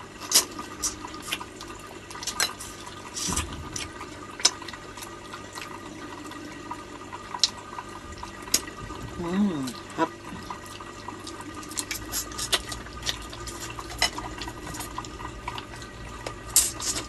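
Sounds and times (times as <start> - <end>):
wet slurping and sucking: 9.5 - 15.7.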